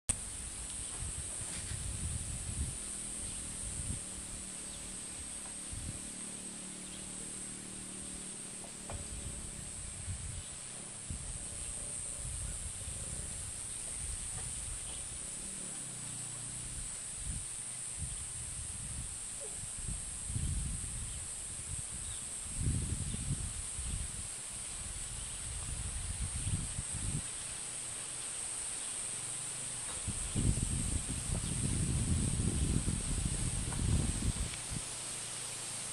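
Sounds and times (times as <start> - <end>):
microphone rumbling: 0.1 - 6.1, 6.8 - 15.8, 29.9 - 34.8
high-pitched insect chorus: 0.1 - 35.9.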